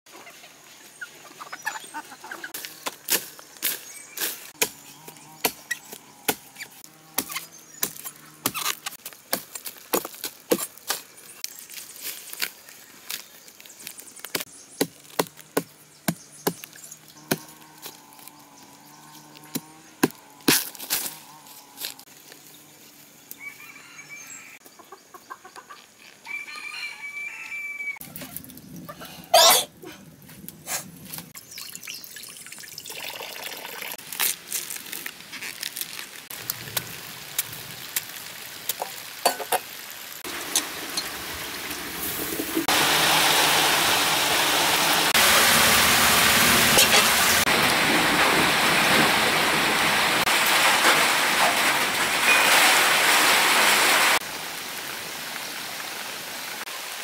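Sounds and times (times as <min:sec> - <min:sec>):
chickens clucking: 0:24.6 - 0:26.0.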